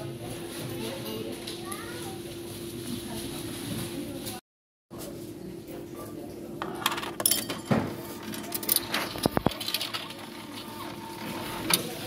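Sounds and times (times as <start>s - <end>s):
coins clinking into a coin slot: 6.6s - 10.9s.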